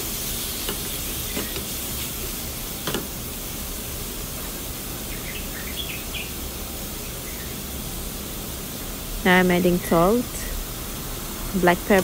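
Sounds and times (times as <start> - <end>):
chicken sizzling in a frying pan: 0.0 - 12.0
wooden spoon knocking on pan: 2.8 - 3.1.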